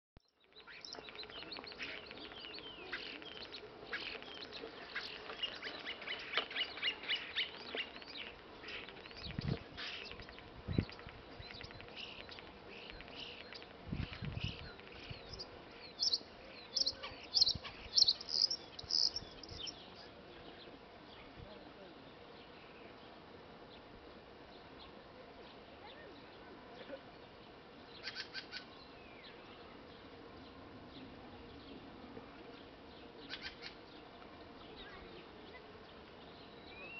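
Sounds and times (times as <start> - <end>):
starling singing: 0.5 - 19.9.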